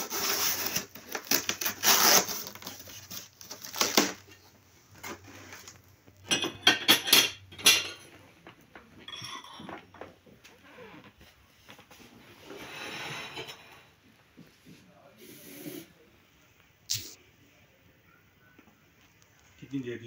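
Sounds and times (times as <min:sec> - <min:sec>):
china plates clinking: 0:06.2 - 0:08.2, 0:09.0 - 0:09.8.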